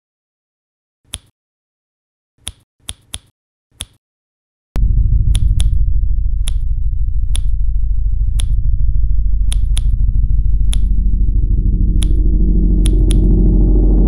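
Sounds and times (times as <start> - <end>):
deep bass drone: 4.8 - 14.0
sharp snap-like clicks: 5.3 - 5.8, 6.4 - 6.6, 7.3 - 7.6, 8.3 - 8.6, 9.4 - 10.0, 10.6 - 10.9, 12.0 - 13.3.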